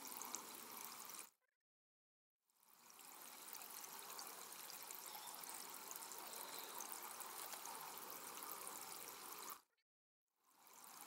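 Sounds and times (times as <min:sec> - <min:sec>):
stream trickling over stones: 0:00.0 - 0:01.3, 0:02.6 - 0:09.6, 0:10.5 - 0:11.0.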